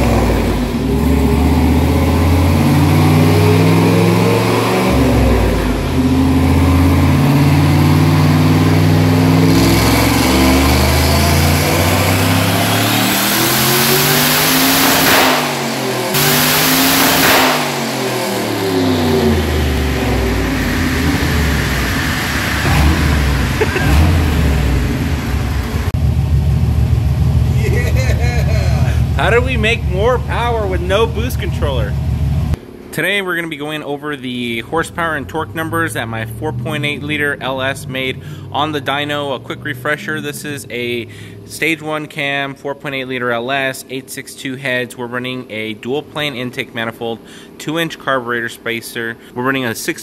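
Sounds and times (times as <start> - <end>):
engine revving on dyno: 0.0 - 32.6.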